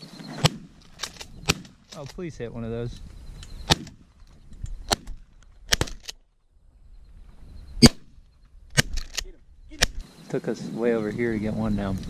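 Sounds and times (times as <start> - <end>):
shotgun shots: 0.4 - 1.8, 3.7 - 4.0, 4.9 - 6.1, 7.8 - 8.1, 9.8 - 10.0.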